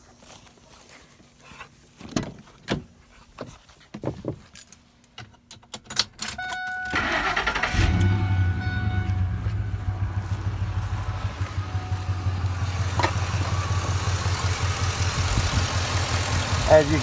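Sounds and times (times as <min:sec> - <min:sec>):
steady warning chime: 0:06.4 - 0:12.6
engine cranking and starting: 0:06.9 - 0:08.3
footsteps: 0:09.0 - 0:12.2.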